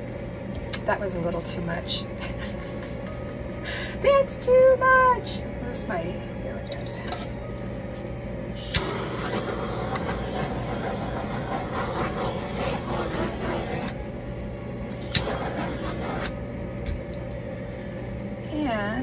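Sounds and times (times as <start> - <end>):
tool scraping on canvas: 8.8 - 14.0, 15.0 - 16.4.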